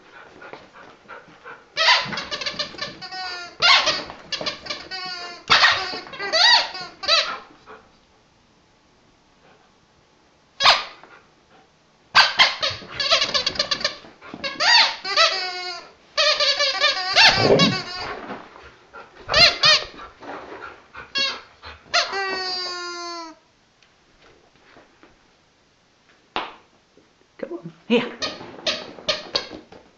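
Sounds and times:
squeaky dog toy squeaking: 0:01.8 - 0:07.4, 0:12.2 - 0:18.1, 0:21.2 - 0:23.4.

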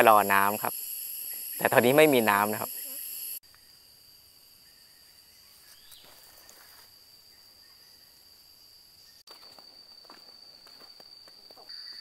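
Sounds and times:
insects droning: 0:00.0 - 0:12.0
soft footsteps on stony path: 0:09.3 - 0:12.0.

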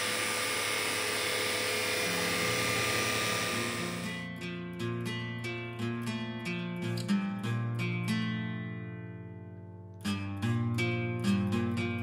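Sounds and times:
vacuum cleaner running: 0:00.0 - 0:04.2
acoustic guitar music: 0:01.6 - 0:12.0.

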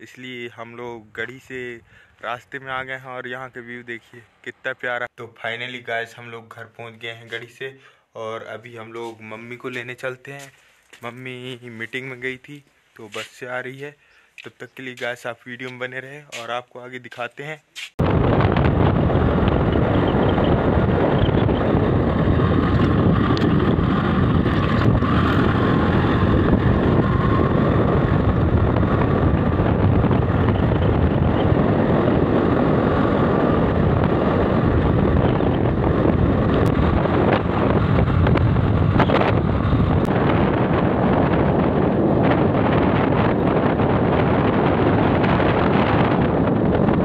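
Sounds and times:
motorcycle riding at speed: 0:18.0 - 0:47.0
wind buffeting microphone: 0:18.0 - 0:47.0.

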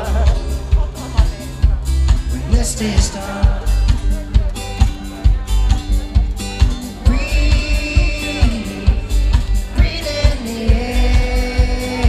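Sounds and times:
live band music: 0:00.0 - 0:12.0
steady drum beat: 0:00.0 - 0:12.0
person singing long notes: 0:07.0 - 0:12.0.

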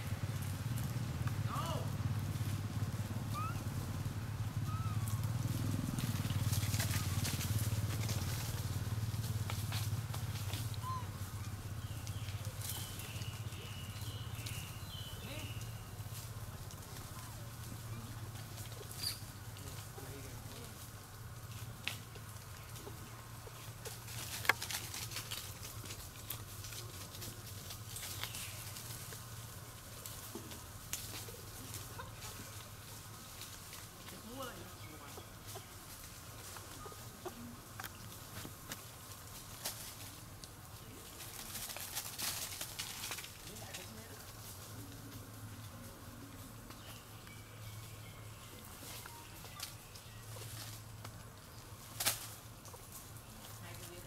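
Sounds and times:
leaves and twigs rustling: 0:00.0 - 0:54.0
small engine idling: 0:00.0 - 0:54.0
twigs snapping: 0:50.6 - 0:53.0.

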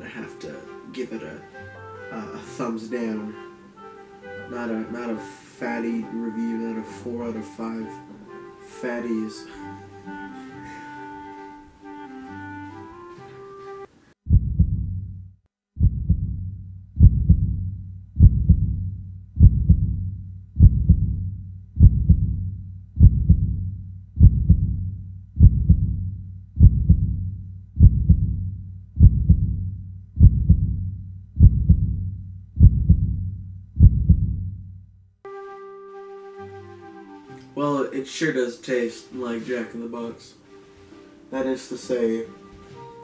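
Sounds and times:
deep heartbeat-like thumps: 0:14.3 - 0:34.9.

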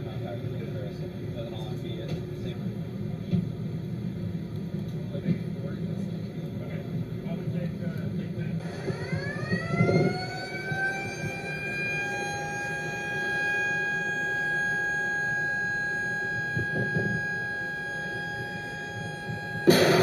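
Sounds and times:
siren winding up: 0:08.6 - 0:20.0
missile launch blast: 0:19.6 - 0:20.0.

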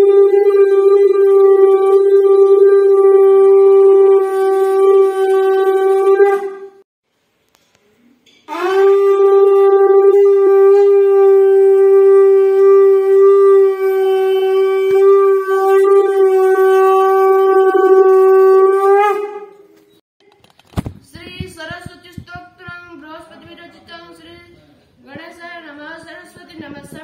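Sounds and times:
conch shell blown: 0:00.0 - 0:06.8, 0:08.5 - 0:19.8.

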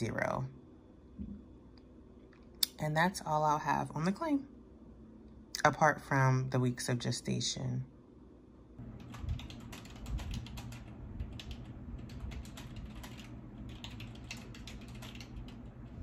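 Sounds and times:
computer keyboard typing: 0:08.8 - 0:15.9.

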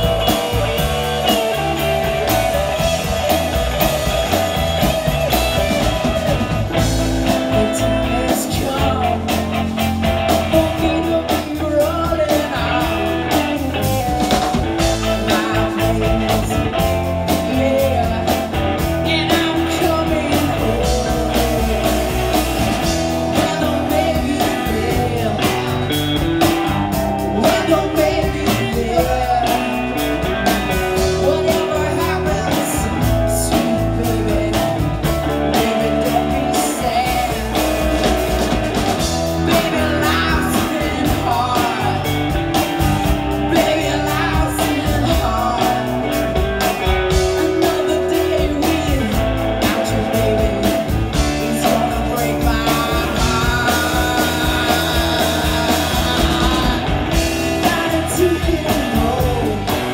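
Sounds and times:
drum kit beat: 0:00.0 - 0:59.9
electric guitars: 0:00.0 - 0:59.9
woman singing: 0:07.5 - 0:09.6, 0:10.3 - 0:13.1, 0:15.0 - 0:22.5, 0:23.2 - 0:26.2, 0:27.3 - 0:37.8, 0:39.4 - 0:42.4, 0:43.4 - 0:46.2, 0:47.1 - 0:59.9.

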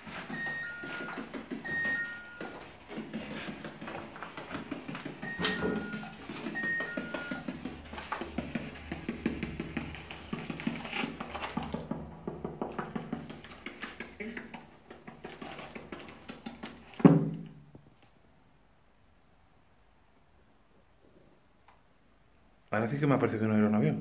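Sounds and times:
footsteps crunching on rubble: 0:00.0 - 0:14.2.

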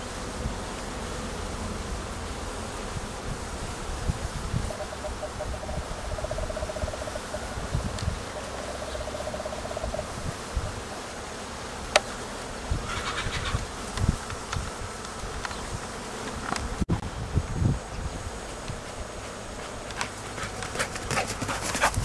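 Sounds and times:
flying insect buzzing: 0:00.0 - 0:22.0.

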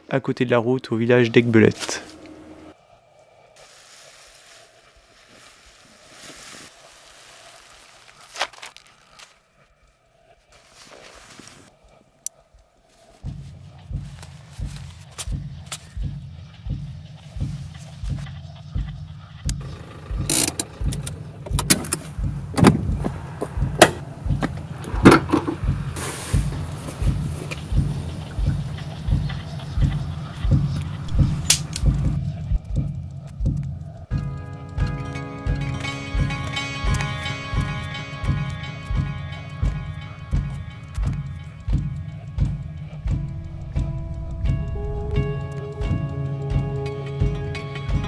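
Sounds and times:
gear rustling: 0:03.6 - 0:09.5, 0:19.5 - 0:34.1
nylon fabric rustling: 0:03.6 - 0:09.5, 0:10.5 - 0:11.8
steady low thudding beat: 0:13.1 - 0:48.0
car door opening: 0:19.6 - 0:25.6.

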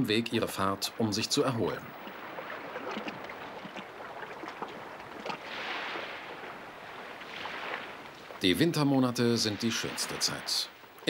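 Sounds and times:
ocean surf on sandy beach: 0:00.5 - 0:11.0.

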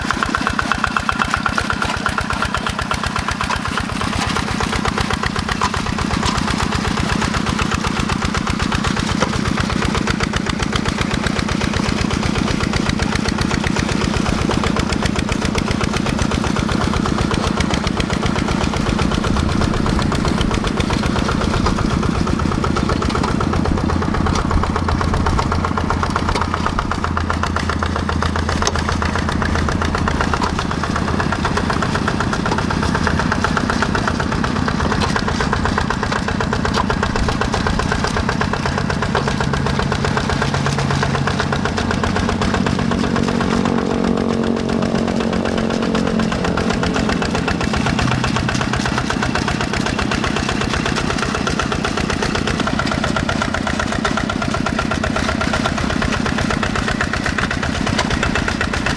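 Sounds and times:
diesel engine chugging under load: 0:00.0 - 0:58.9.

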